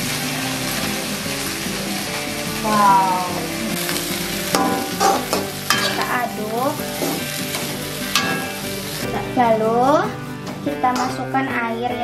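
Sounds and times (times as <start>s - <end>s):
frying sizzle: 0.0s - 11.5s
metal spatula scraping a wok: 3.8s - 9.1s.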